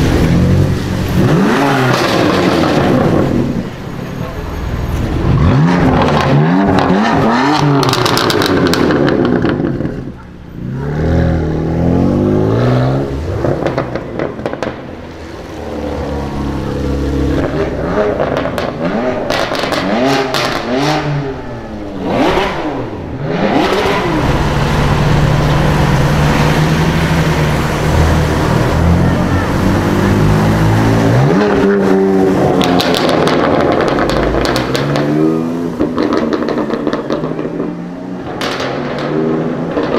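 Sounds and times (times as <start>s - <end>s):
car engine revving: 0.0s - 4.0s, 4.6s - 39.9s
exhaust crackles and pops: 5.5s - 10.3s, 13.3s - 15.1s, 17.3s - 21.2s, 31.0s - 39.9s.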